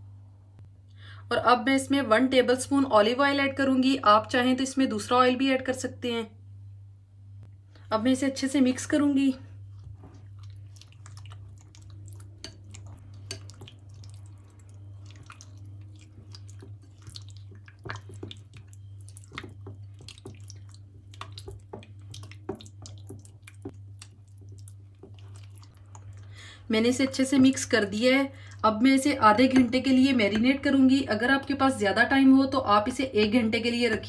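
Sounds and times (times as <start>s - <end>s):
steady low hum: 0.0s - 34.0s
spatula squelching in marinade: 9.5s - 30.4s.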